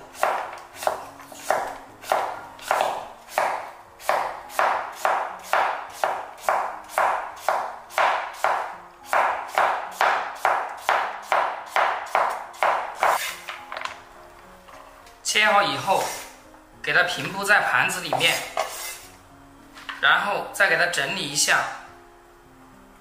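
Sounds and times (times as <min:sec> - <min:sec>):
cleaver chopping on wooden board: 0:00.2 - 0:13.6.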